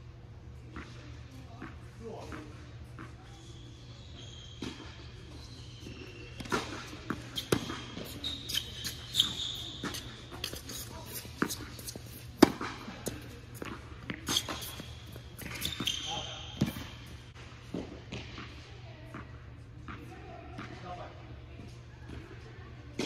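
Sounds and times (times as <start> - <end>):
shoes squeaking on court: 0.6 - 20.9
tennis balls bouncing and struck: 4.5 - 21.0.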